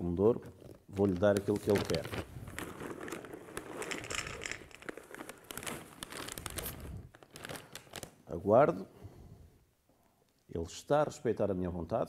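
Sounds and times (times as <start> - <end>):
plastic bag crinkling: 0.6 - 8.3
kibble rattling into metal bowl: 3.1 - 5.3.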